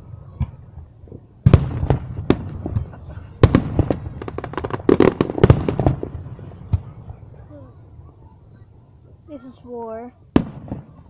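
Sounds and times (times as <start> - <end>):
crackling firework pops: 0.0 - 7.2, 10.3 - 11.0
firework bangs: 0.0 - 9.2, 10.3 - 11.0.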